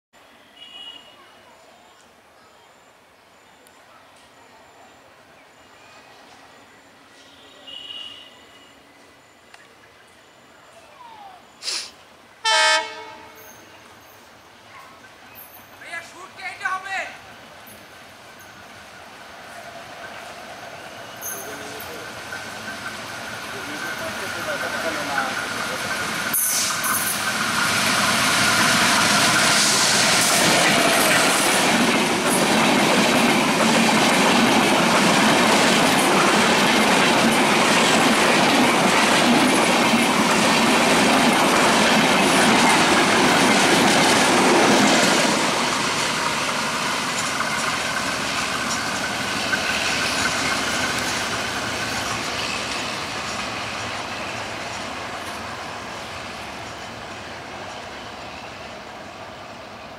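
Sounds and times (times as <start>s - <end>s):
diesel locomotive passing: 12.2s - 59.9s
train wheels running over rails: 20.0s - 59.7s.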